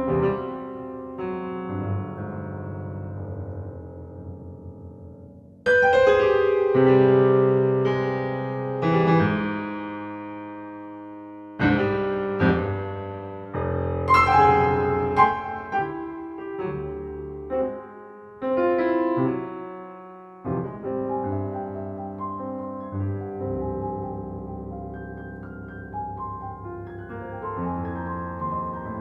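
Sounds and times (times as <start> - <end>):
solo piano piece: 0.0 - 29.0.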